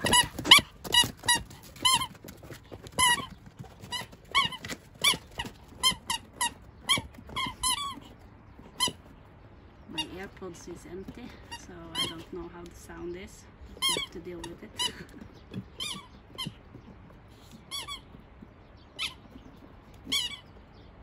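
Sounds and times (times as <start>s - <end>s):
squeaky toy ball squeaking: 0.0s - 9.1s, 11.4s - 12.3s, 13.7s - 16.9s, 17.5s - 18.2s, 18.9s - 20.6s.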